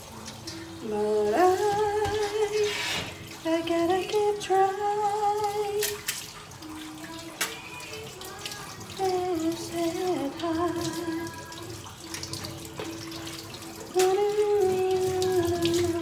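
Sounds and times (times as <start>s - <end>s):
tap running into metal sink: 1.6s - 3.4s.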